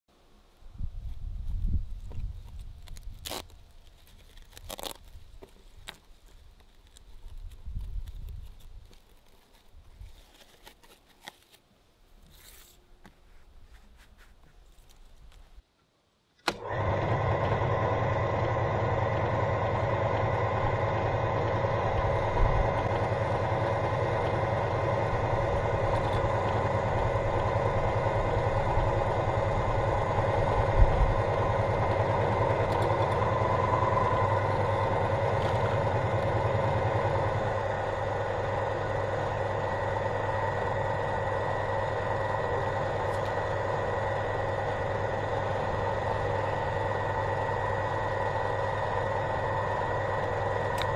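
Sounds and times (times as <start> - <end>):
meat grinder motor humming and whining: 16.5 - 50.9.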